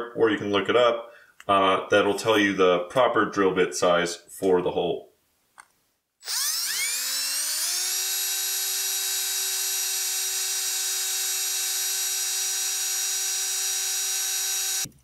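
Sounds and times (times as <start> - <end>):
electric drill whine: 6.2 - 14.9.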